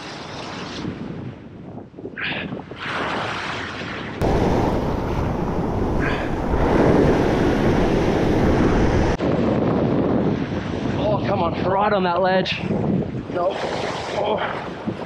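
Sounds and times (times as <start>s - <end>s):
wind buffeting microphone: 4.1s - 15.0s
ocean waves washing over rocks: 4.2s - 9.2s.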